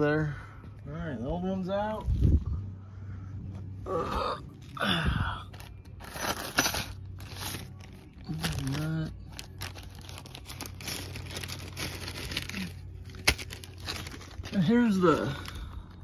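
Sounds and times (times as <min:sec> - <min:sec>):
plastic bags crinkling: 0:05.5 - 0:16.0.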